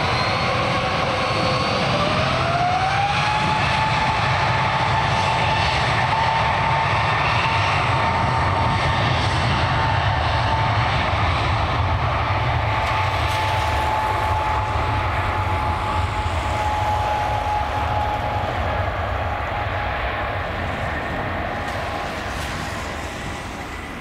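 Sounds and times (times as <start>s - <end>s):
aircraft engines rumbling and whining: 0.0s - 24.0s.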